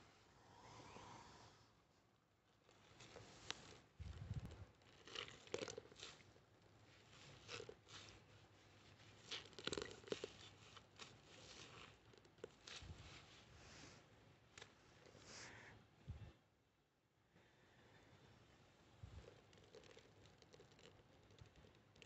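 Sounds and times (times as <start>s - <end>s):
sponge squelching in paste: 2.8s - 14.0s.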